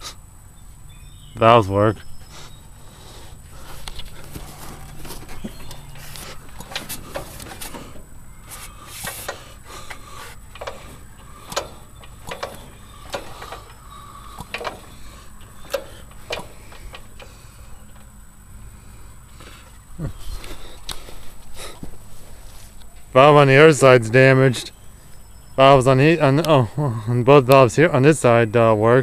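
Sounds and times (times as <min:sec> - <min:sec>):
engine clicks and taps: 0:02.8 - 0:22.1.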